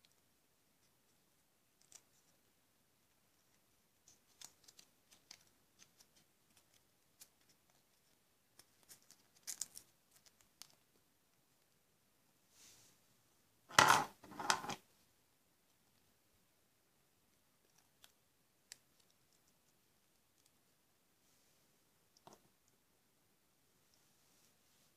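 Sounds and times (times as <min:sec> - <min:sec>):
plastic scraping: 0:13.7 - 0:14.8.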